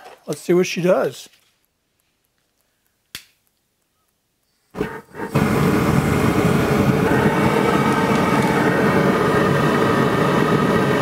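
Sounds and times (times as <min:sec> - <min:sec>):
sharp click: 0:02.2 - 0:04.2
gas burner flame rushing: 0:04.7 - 0:11.0.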